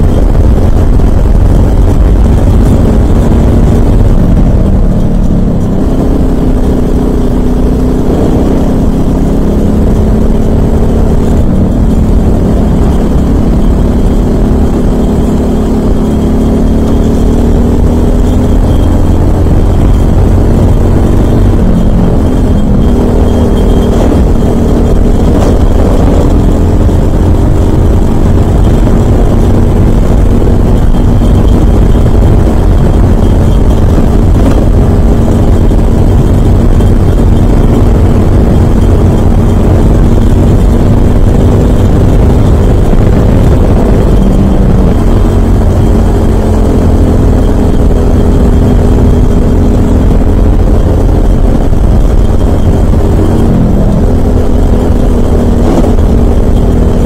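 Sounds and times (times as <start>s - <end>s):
kart engine at racing speed: 0.0s - 57.0s
wind rushing past microphone: 17.7s - 57.0s.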